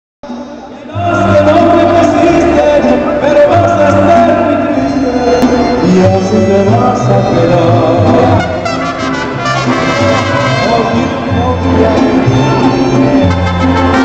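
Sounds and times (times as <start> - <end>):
guitars and violins playing: 0.3 - 14.0
person singing into microphone: 0.3 - 14.0.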